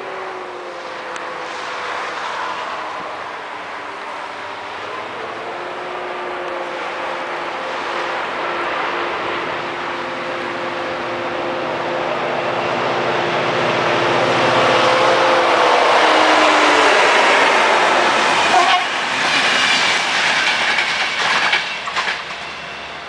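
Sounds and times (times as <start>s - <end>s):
diesel locomotive engine drone: 0.0s - 23.0s.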